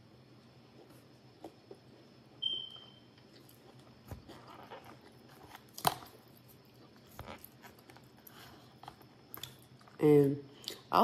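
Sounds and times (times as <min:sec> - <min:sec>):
chewing food: 0:03.2 - 0:10.9.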